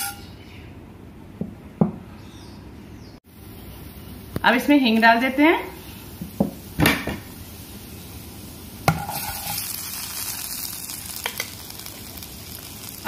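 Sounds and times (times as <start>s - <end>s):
seeds sizzling in hot oil: 5.7s - 13.0s
spoon scraping: 8.9s - 9.8s.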